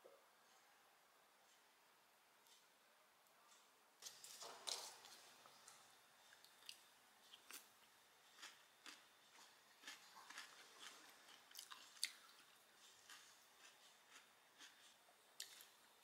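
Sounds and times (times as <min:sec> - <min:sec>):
person chewing cereal: 0:04.0 - 0:16.0.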